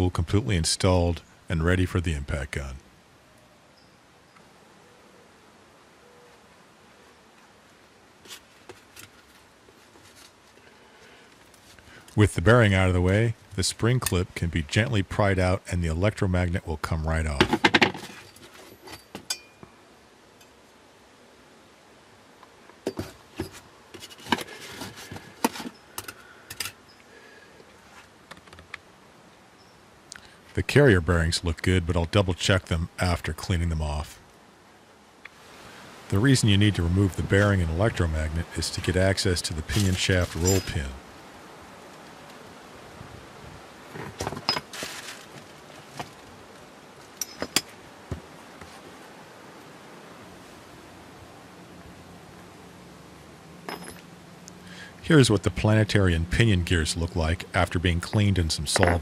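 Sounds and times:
steady hiss: 0:00.0 - 0:59.0
steel parts clinking and knocking: 0:40.2 - 0:40.9, 0:44.2 - 0:44.7, 0:47.2 - 0:47.7, 0:53.7 - 0:54.1, 0:58.7 - 0:59.0.

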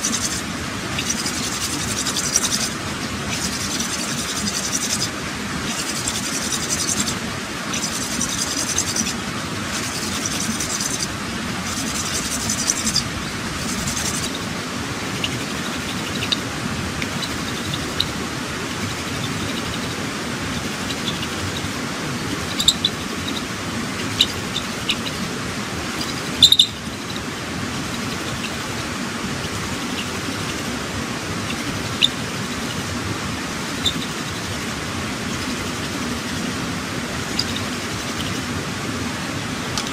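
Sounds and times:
wooden spindle rubbing on board: 0:00.0 - 0:16.4, 0:17.0 - 0:25.1
steady background hiss: 0:00.0 - 0:39.9
short chirps and clicks: 0:26.0 - 0:26.8.

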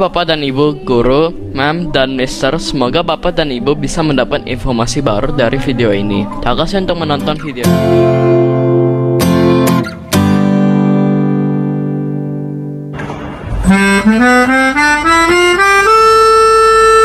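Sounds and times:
melodica playing rising notes: 0:13.6 - 0:17.0.

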